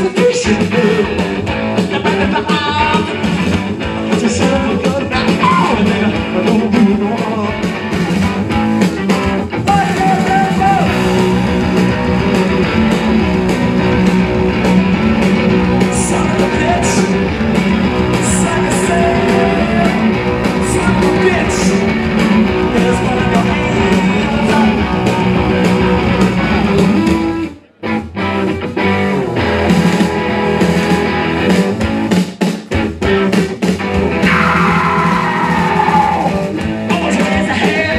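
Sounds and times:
person singing into a microphone: 0.0s - 1.2s, 1.9s - 3.2s, 4.1s - 7.6s, 15.9s - 17.1s, 18.2s - 21.8s, 22.6s - 25.5s, 36.9s - 37.9s
drums: 0.0s - 37.9s
electric guitars: 0.0s - 37.9s.

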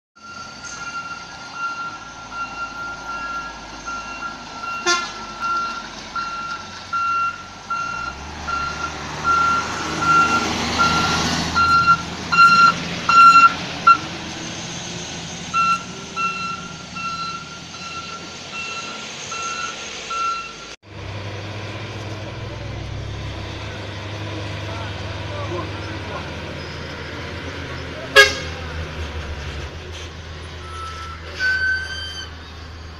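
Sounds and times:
vehicle warning beeper: 0.2s - 14.0s, 15.5s - 20.8s
diesel engine and tyre noise: 0.2s - 32.9s.

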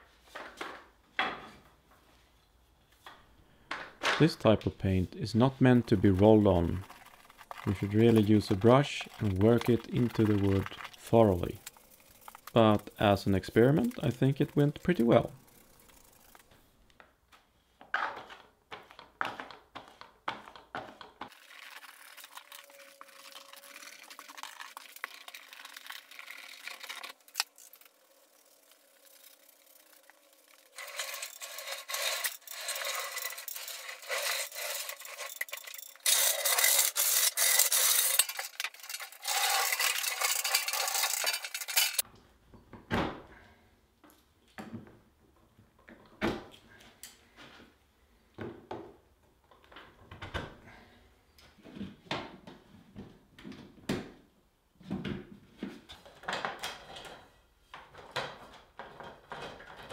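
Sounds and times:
thin even scraping: 21.6s - 42.0s.

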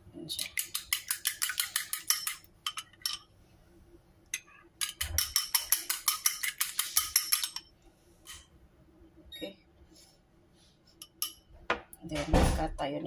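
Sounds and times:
chopsticks beating eggs in a bowl: 0.3s - 3.1s, 4.8s - 7.6s.

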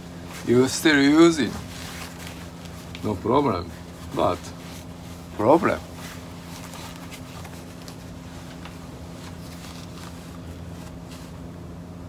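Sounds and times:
low electrical hum: 0.0s - 12.0s
wetsuit rustling and tapping: 4.0s - 11.4s.

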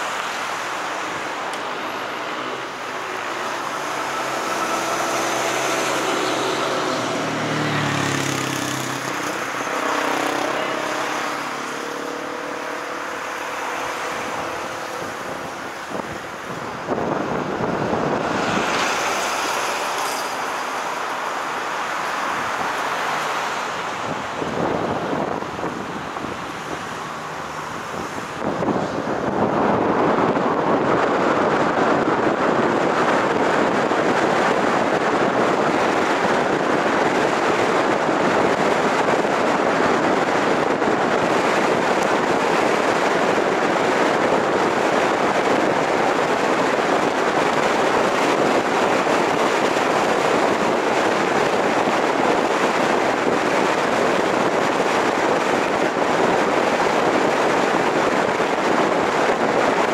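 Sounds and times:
car wind and road noise: 0.0s - 59.9s.

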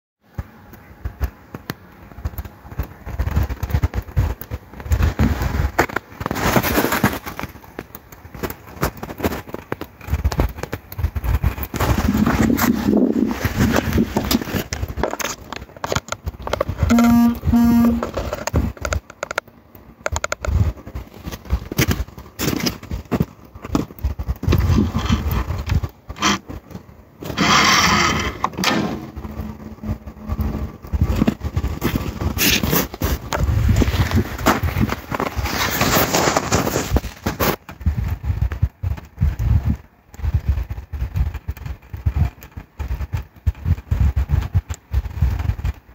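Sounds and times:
handling noise crackling: 0.3s - 45.9s
wind buffeting microphone: 9.7s - 19.1s, 19.9s - 35.6s, 36.9s - 45.9s.

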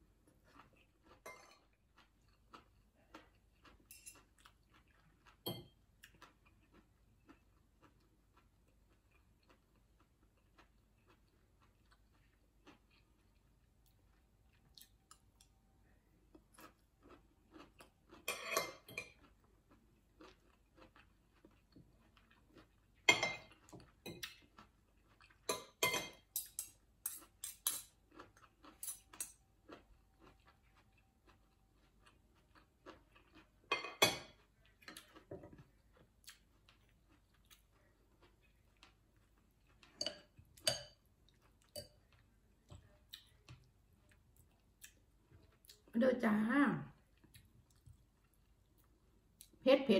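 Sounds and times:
quiet chewing: 0.0s - 46.0s, 46.9s - 49.6s
cutlery clinking on glass bowl: 1.2s - 1.7s, 3.8s - 4.3s, 5.4s - 5.8s, 18.3s - 19.2s, 23.1s - 24.4s, 25.5s - 28.0s, 28.8s - 29.4s, 33.7s - 34.4s, 39.9s - 41.0s.

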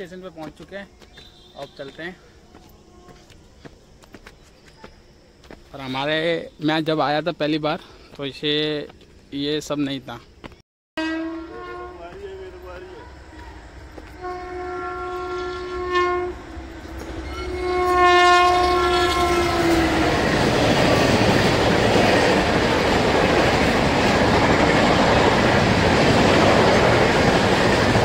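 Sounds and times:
locomotive horn blasts: 11.0s - 20.2s
train wheels rumbling on rails: 11.4s - 15.8s, 16.4s - 28.0s.

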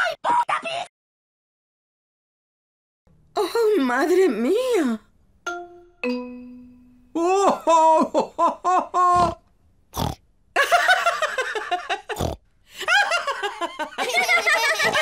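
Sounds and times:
cartoon pig voices: 9.1s - 10.2s
pig snorts: 9.2s - 10.2s, 12.1s - 12.4s
cartoon laughter: 10.6s - 15.0s.

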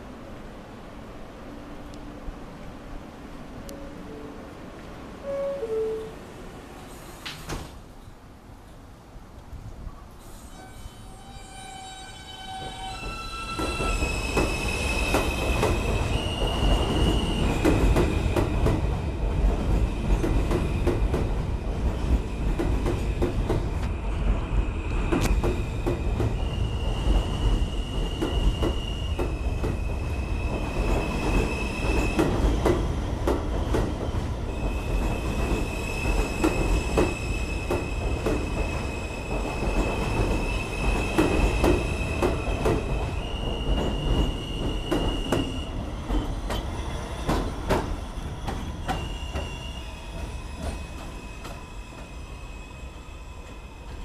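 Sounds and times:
subway train rumbling: 0.0s - 54.0s
high two-pitch tone: 5.2s - 6.3s.

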